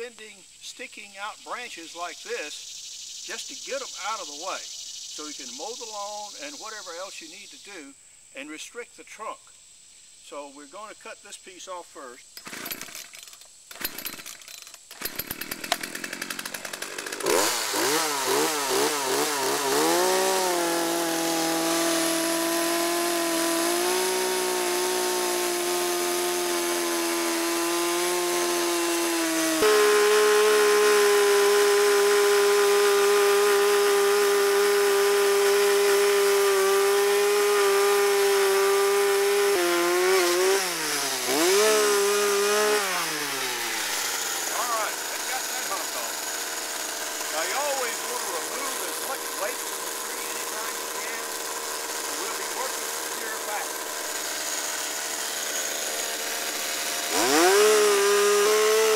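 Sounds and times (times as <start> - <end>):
chainsaw running: 1.5 - 7.9, 12.3 - 58.9
chainsaw cutting wood: 3.3 - 4.6, 5.2 - 7.9, 12.3 - 58.9
chainsaw cranking clatter: 12.3 - 58.9.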